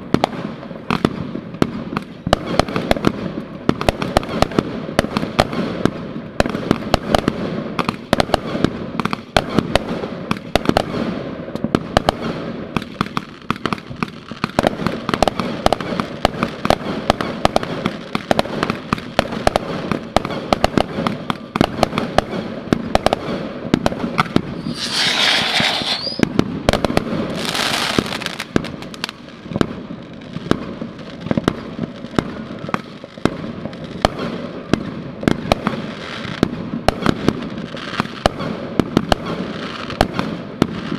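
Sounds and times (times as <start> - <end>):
fireworks bangs and pops: 0.0 - 40.9
loud hissing rushes: 24.5 - 26.3.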